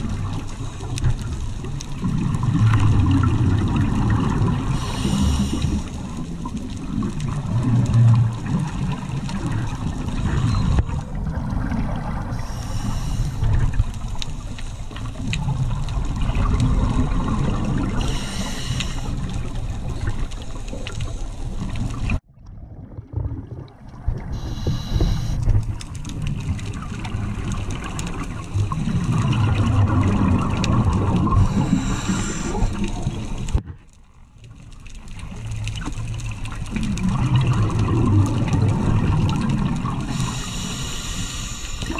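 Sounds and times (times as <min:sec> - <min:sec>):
muffled underwater rumble: 0:00.0 - 0:41.9
bubbles from diver exhaling: 0:22.0 - 0:24.4, 0:26.8 - 0:33.5, 0:36.7 - 0:40.3.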